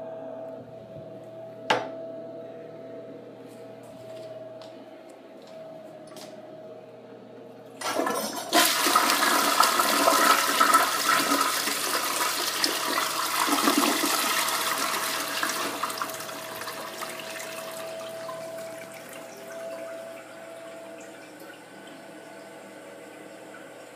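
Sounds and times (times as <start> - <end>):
toilet flushing: 7.8 - 23.9.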